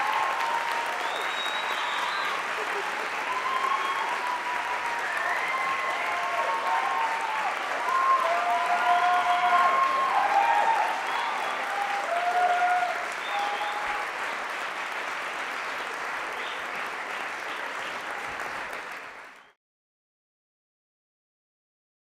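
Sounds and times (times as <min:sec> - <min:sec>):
whoops and cheering voices: 0:00.0 - 0:14.1
audience applauding: 0:00.0 - 0:19.6.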